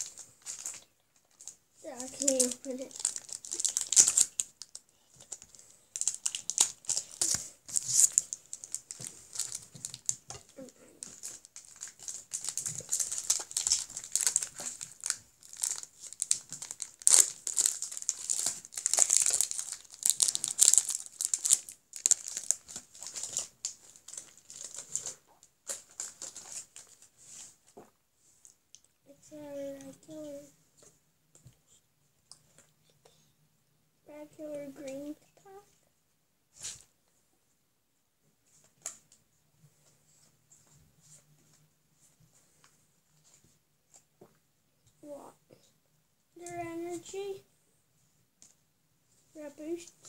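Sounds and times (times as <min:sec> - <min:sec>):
foil wrapper crinkling and tearing: 0:00.0 - 0:27.1.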